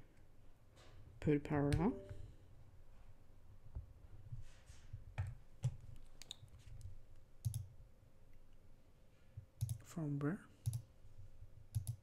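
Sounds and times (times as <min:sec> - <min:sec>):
computer mouse clicking: 0:05.2 - 0:07.7, 0:09.6 - 0:09.8, 0:10.6 - 0:10.9, 0:11.7 - 0:12.0.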